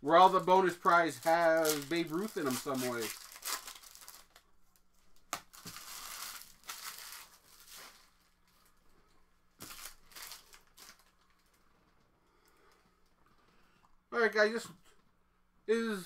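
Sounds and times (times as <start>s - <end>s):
plastic packaging crinkling: 0.2s - 12.0s.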